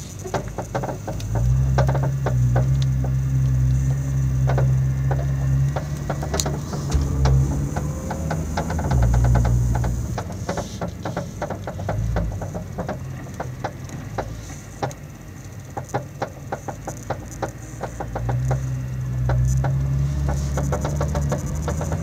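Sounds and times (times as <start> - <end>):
low engine hum: 0.0 - 22.0
suspension clicking and creaking: 0.0 - 22.0.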